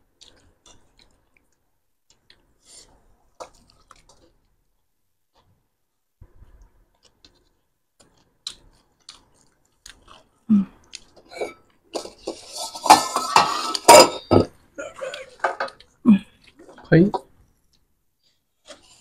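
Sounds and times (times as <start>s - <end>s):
crunching and chewing food: 0.0s - 5.6s, 6.2s - 12.6s.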